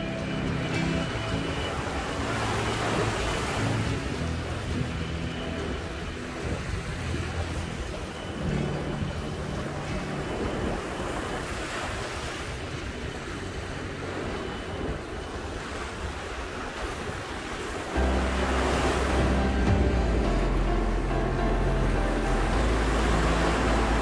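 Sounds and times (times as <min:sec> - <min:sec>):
sea surf breaking on beach: 0:00.0 - 0:24.0
wind rumbling on microphone: 0:00.0 - 0:24.0.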